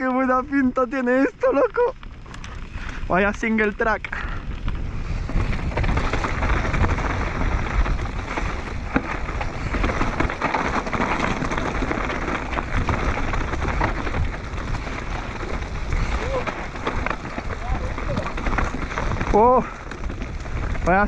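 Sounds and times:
bike rattling: 0.0 - 21.0
bike tyres crunching over stones: 0.0 - 21.0
wind on microphone: 1.8 - 21.0
stones clicking: 5.7 - 21.0.

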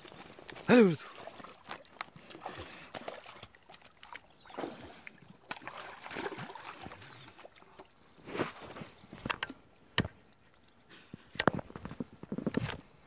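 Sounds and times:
shallow water splashing: 0.0 - 7.9.

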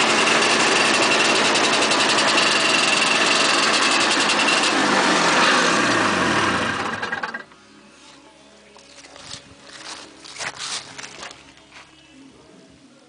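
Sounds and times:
snowmobile engine idling: 0.0 - 7.5.

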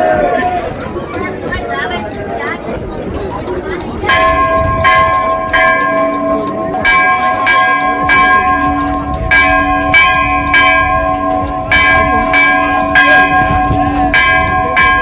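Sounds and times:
temple bells ringing: 3.4 - 15.0.

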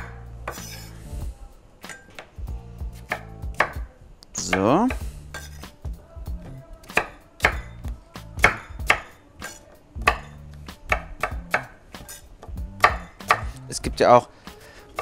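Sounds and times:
knife chopping on wooden board: 3.0 - 3.8, 6.9 - 7.7, 8.4 - 13.6.

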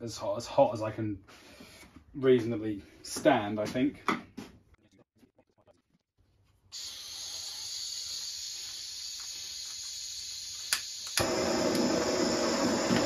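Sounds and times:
blowtorch flame burning: 6.8 - 13.0
blowtorch gas hissing: 6.8 - 13.0.

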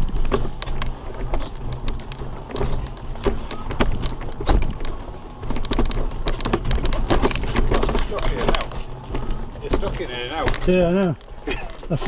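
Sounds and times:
scooter rattling over stones: 0.0 - 12.0.

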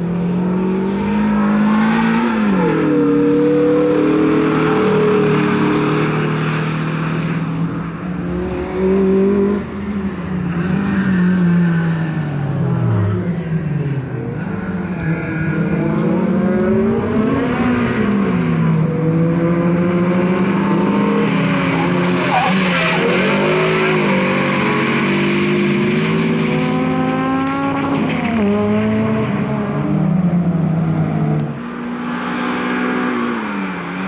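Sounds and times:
car engine revving: 0.0 - 34.0
tyres squealing: 21.6 - 24.7.

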